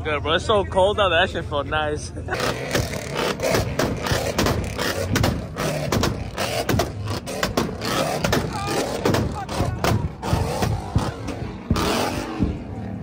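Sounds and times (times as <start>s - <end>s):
engines running: 0.0s - 13.0s
exhaust popping and banging: 2.4s - 13.0s.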